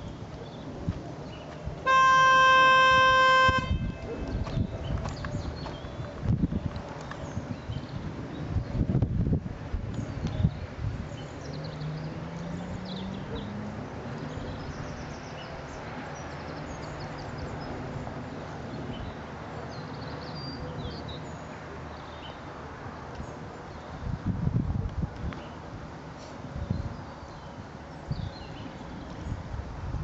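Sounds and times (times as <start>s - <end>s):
wind noise: 0.0s - 11.6s, 23.2s - 30.0s.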